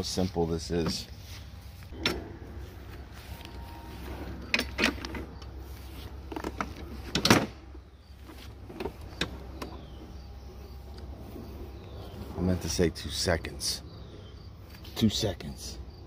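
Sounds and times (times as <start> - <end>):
mower handle clicks and clunks: 2.0 - 2.3, 4.4 - 5.6, 6.2 - 10.1.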